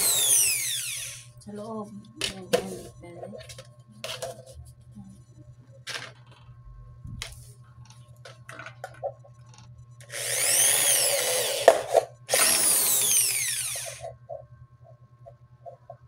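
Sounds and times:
electric drill whining: 0.0 - 1.3, 10.0 - 14.1.

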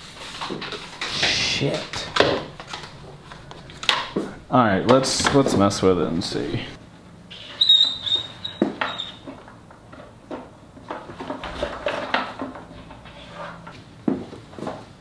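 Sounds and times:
high squeak: 7.3 - 9.3.

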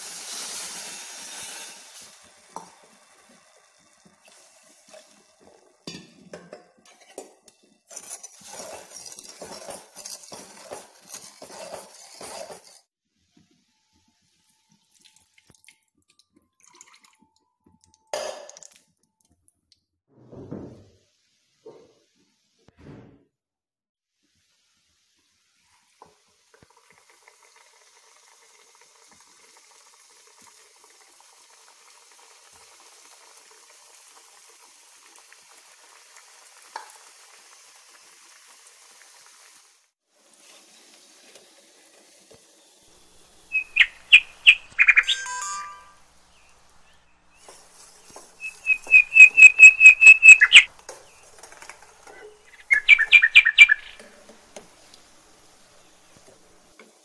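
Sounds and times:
dough frying in oil: 0.0 - 16.1, 24.1 - 45.0, 46.1 - 57.0
bird chirping: 43.5 - 47.4, 48.4 - 51.3, 52.4 - 54.1.

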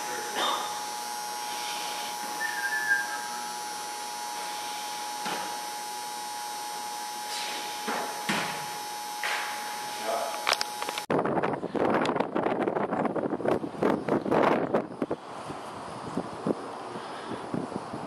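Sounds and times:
constant high tone: 0.0 - 5.2
steady hum and hiss: 0.0 - 18.0.

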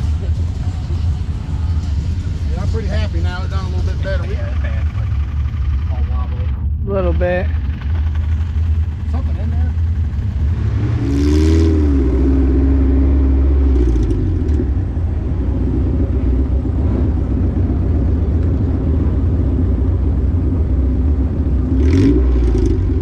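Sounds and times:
car engine running and revving: 0.0 - 23.0.

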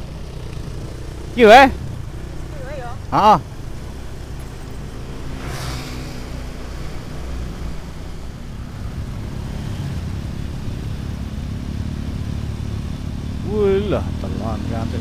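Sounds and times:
motorcycle engine running: 0.0 - 15.0
wind and road noise: 0.0 - 15.0
brief rushing sound: 5.4 - 6.6.

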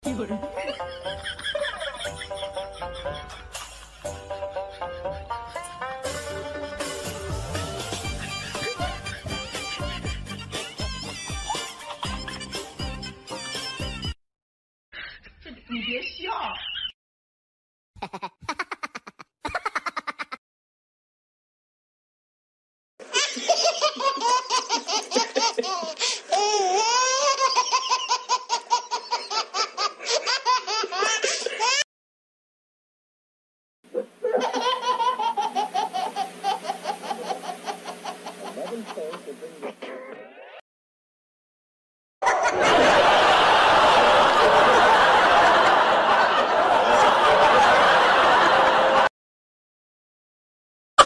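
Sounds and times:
high-pitched laughter: 0.6 - 3.8, 18.0 - 20.4, 34.0 - 40.6
crowd laughing and talking: 42.2 - 49.1.

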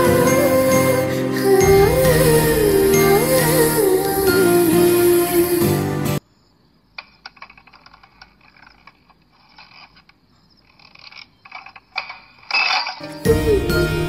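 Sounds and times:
music: 0.0 - 6.2, 13.0 - 14.0
lamp post creaking and clicking: 6.9 - 13.1.

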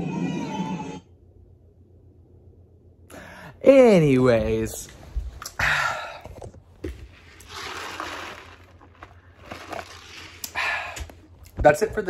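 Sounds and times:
person sipping from a cup: 7.4 - 11.2.

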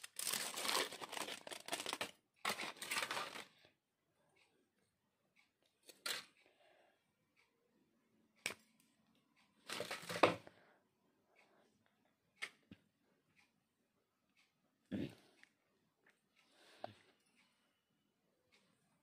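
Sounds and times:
foil wrapper crinkling: 0.0 - 3.5.

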